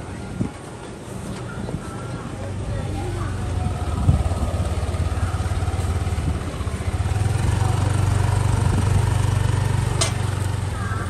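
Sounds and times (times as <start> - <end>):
motor scooter engine running: 3.2 - 11.0.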